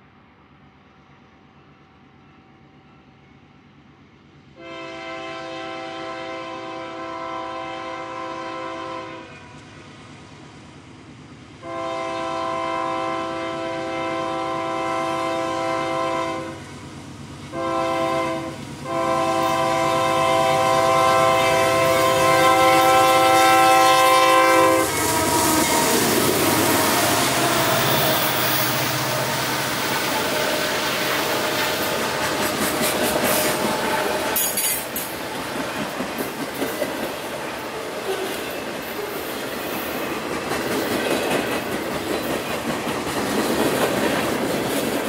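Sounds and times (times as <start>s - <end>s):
train air horn blasts: 4.6s - 9.7s, 11.6s - 16.7s, 17.5s - 32.2s
locomotive passing with wheel noise: 13.9s - 45.0s.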